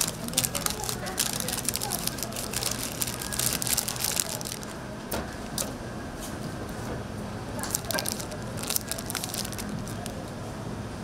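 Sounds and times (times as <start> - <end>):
paper wrapper crinkling: 0.0 - 4.8, 7.6 - 10.3.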